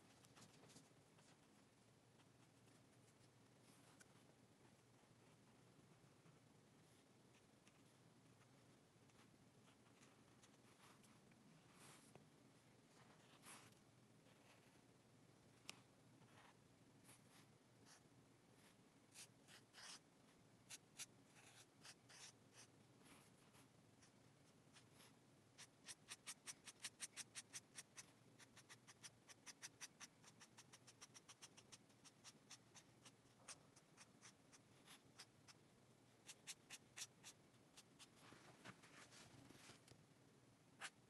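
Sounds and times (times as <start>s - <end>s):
marker scratching on paper: 25.6s - 35.6s, 36.2s - 38.1s.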